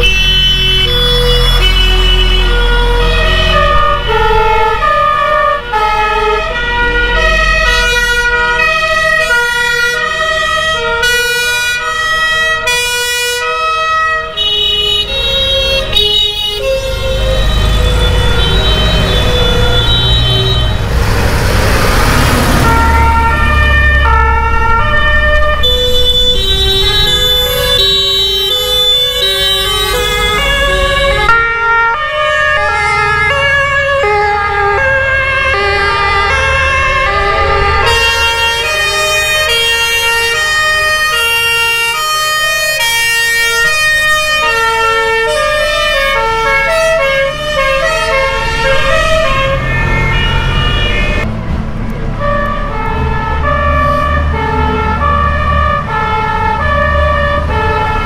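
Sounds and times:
two-tone sirens: 0:00.0 - 0:58.0
vehicle engines running: 0:14.8 - 0:41.4, 0:45.2 - 0:58.0.

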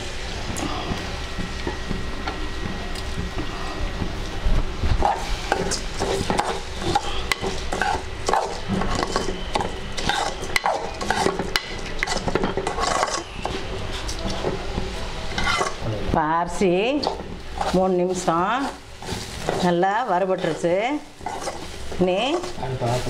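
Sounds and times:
spoon scraping rice in metal pan: 0:05.0 - 0:14.6, 0:15.3 - 0:15.8, 0:21.2 - 0:22.6.

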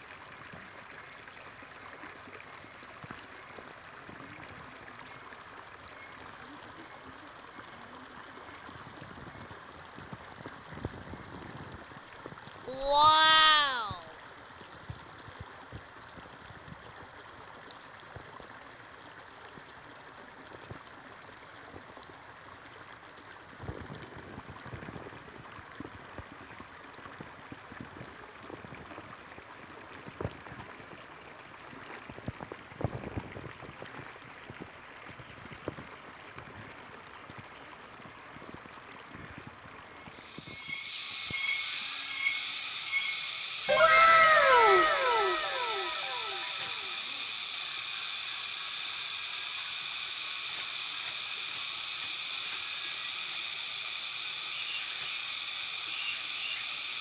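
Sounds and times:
short falling pitched sounds: 0:12.7 - 0:14.1, 0:43.7 - 0:47.4.

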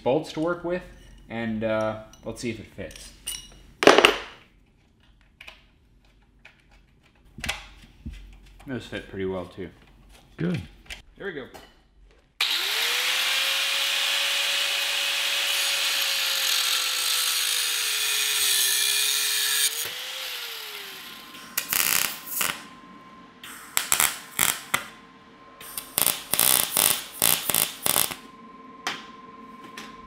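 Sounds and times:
angle grinder grinding steel: 0:12.4 - 0:22.7, 0:25.7 - 0:28.2
welder crackling: 0:12.4 - 0:22.7, 0:23.4 - 0:25.0, 0:25.6 - 0:28.2.

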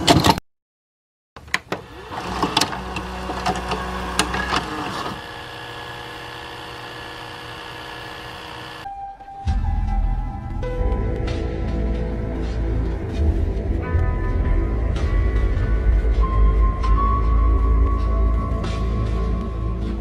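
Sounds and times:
vcr clicks and clunks: 0:00.0 - 0:00.4, 0:01.4 - 0:08.8
tape playback hum and hiss: 0:01.4 - 0:08.8
vcr whirring: 0:01.4 - 0:08.9.

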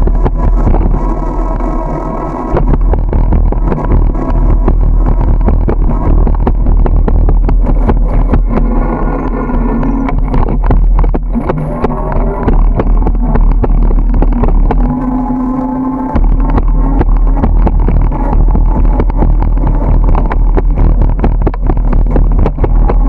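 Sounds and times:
steady droning tone: 0:00.0 - 0:23.0
wind and road rumble: 0:00.0 - 0:23.0
bicycle knocks and rattles: 0:10.0 - 0:15.2, 0:16.1 - 0:23.0.

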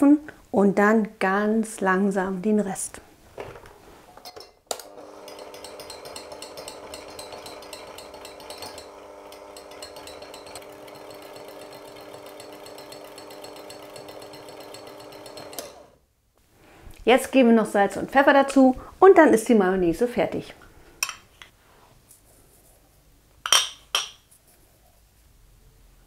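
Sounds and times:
electric kitchen mixer running: 0:04.8 - 0:16.0.

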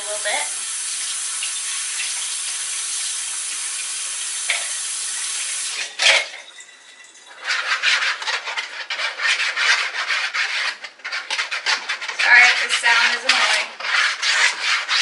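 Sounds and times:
tap running into sink: 0:01.0 - 0:06.3
spoon scraping plastic container: 0:07.3 - 0:15.0.

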